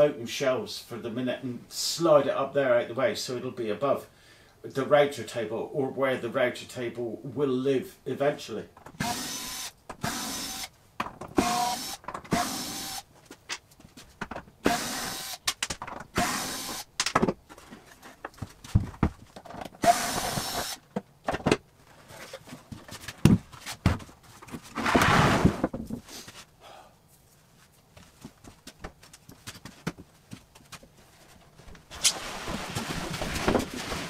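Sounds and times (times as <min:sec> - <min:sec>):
cordless drill bursts: 0:09.0 - 0:10.7, 0:11.4 - 0:13.0, 0:14.6 - 0:15.4, 0:16.2 - 0:16.9, 0:19.8 - 0:20.8.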